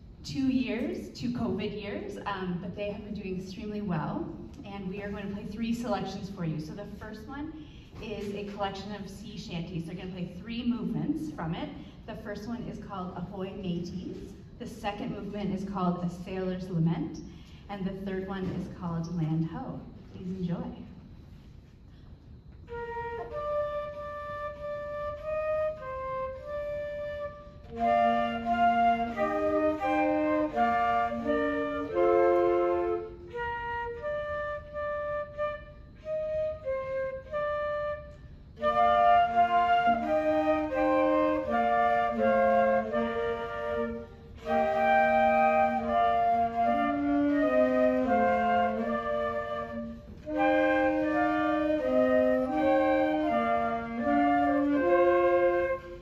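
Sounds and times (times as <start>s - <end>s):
woodwind ensemble playing sea shanty: 22.6s - 56.0s.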